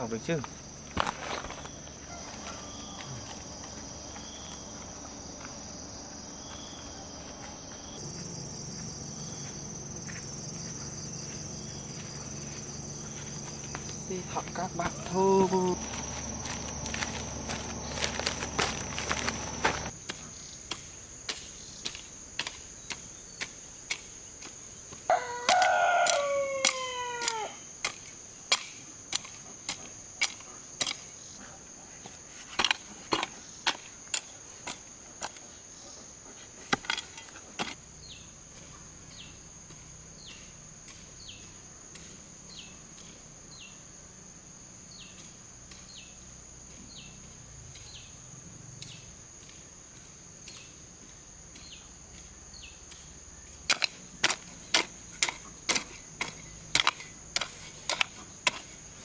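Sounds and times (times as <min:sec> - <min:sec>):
high-pitched insect trill: 0:00.0 - 0:31.4, 0:36.9 - 0:59.0
rooster crowing: 0:02.0 - 0:03.3, 0:25.1 - 0:27.6.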